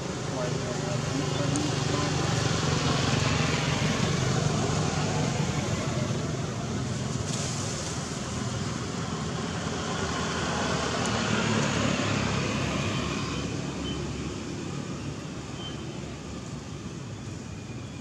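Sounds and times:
rushing outdoor background noise: 0:00.0 - 0:18.0.

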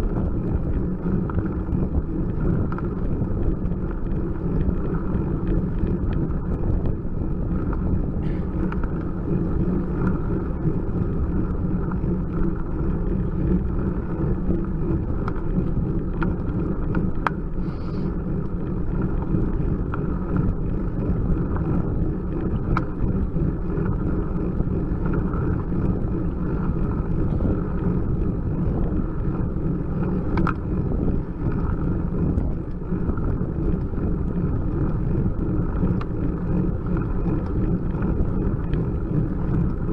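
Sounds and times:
wind and road noise: 0:00.0 - 0:39.9
faint clicks: 0:16.1 - 0:21.7, 0:30.1 - 0:30.6.

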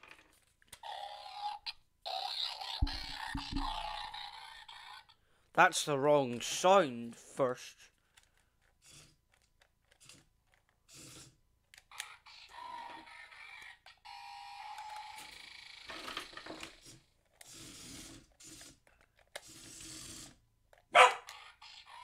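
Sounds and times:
toy electronic sound effects: 0:00.8 - 0:05.1.

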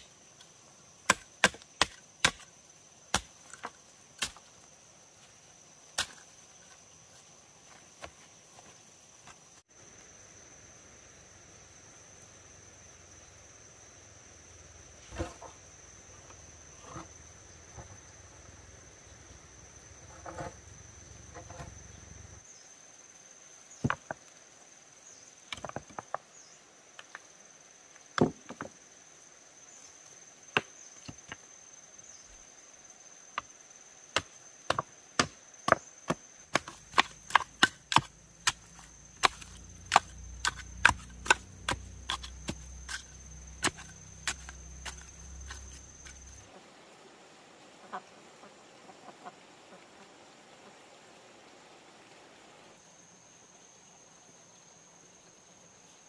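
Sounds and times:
pole tamping soil: 0:15.1 - 0:15.6, 0:20.1 - 0:20.6, 0:21.3 - 0:21.8, 0:34.2 - 0:46.4.

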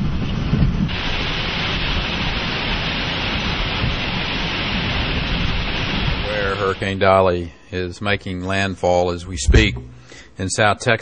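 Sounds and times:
driving rain: 0:00.0 - 0:07.2
hurricane-force wind: 0:00.0 - 0:07.4.

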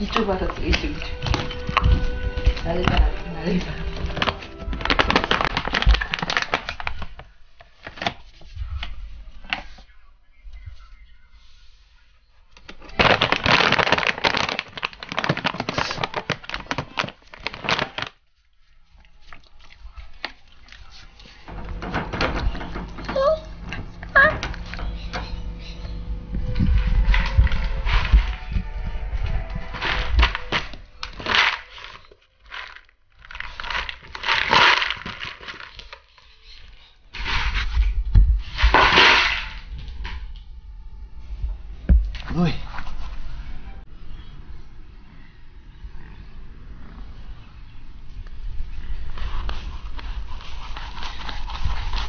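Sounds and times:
plastic bag crinkling: 0:00.0 - 0:08.3, 0:12.8 - 0:18.3, 0:29.7 - 0:37.9.

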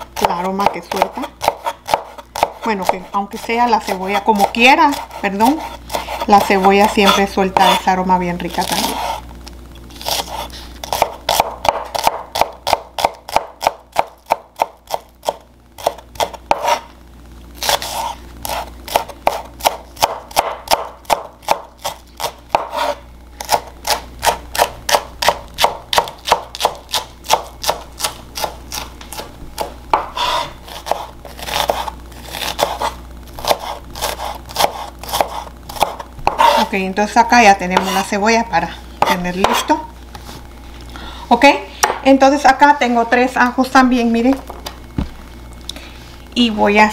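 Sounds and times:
knife chopping on wooden board: 0:00.2 - 0:03.0, 0:10.1 - 0:16.8, 0:17.7 - 0:36.7, 0:37.7 - 0:38.0, 0:39.0 - 0:39.7, 0:41.8 - 0:42.0.

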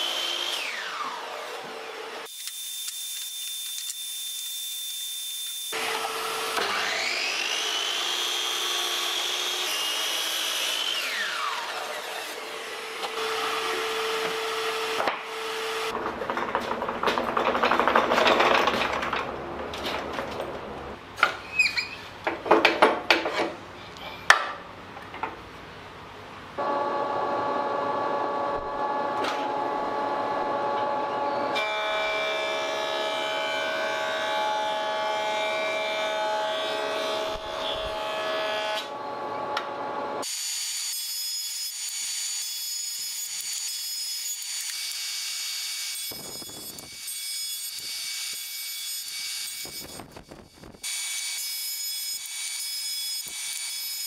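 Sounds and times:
jointer planing wood: 0:05.8 - 0:20.9.

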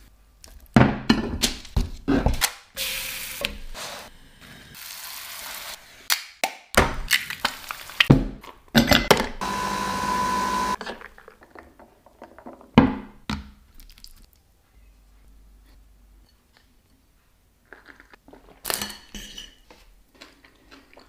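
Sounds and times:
oil sizzling: 0:02.8 - 0:06.1, 0:07.0 - 0:08.1
coffee machine humming: 0:09.4 - 0:10.8.

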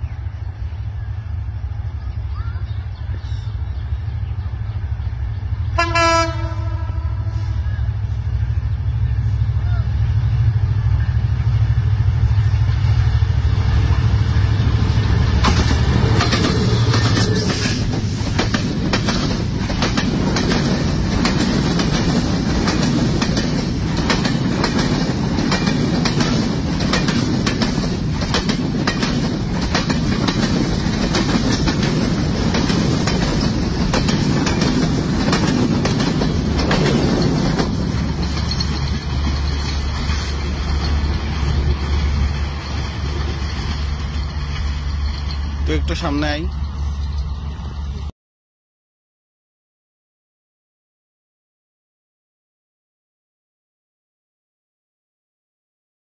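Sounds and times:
train rumble: 0:00.0 - 0:48.1
train wheels clickety-clack: 0:13.8 - 0:47.4.

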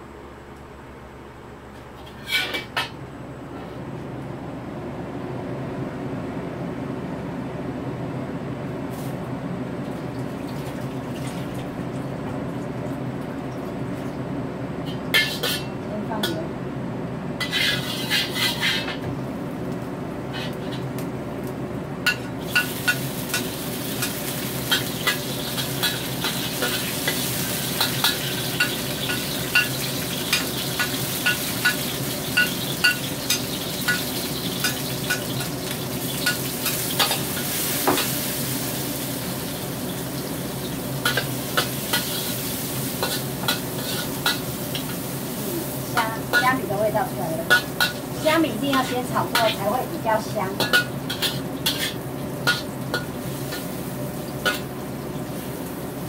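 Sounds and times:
spatula scraping a wok: 0:02.0 - 0:02.8, 0:14.9 - 0:15.8, 0:17.4 - 0:19.1, 0:20.3 - 0:21.0, 0:22.1 - 0:38.5, 0:41.0 - 0:49.8, 0:50.6 - 0:54.7
food sizzling in hot oil: 0:14.9 - 0:15.8, 0:17.4 - 0:56.0.

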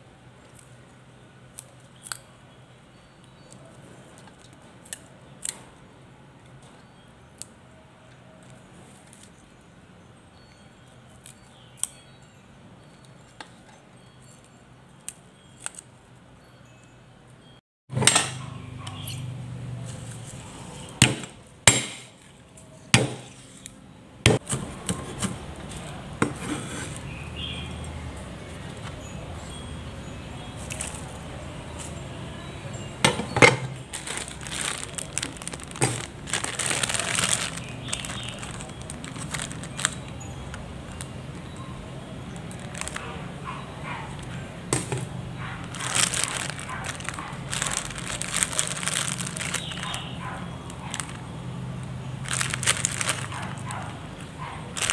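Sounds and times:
plastic bag crinkling: 0:33.6 - 0:41.5, 0:42.4 - 0:43.2, 0:44.8 - 0:54.9.

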